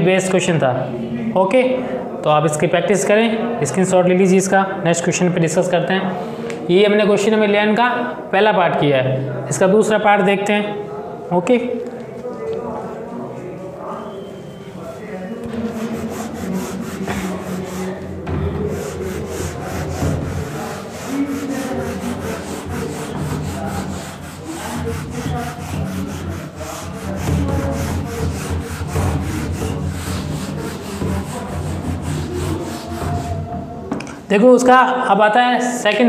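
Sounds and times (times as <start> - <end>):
duster rubbing on whiteboard: 14.8 - 33.7.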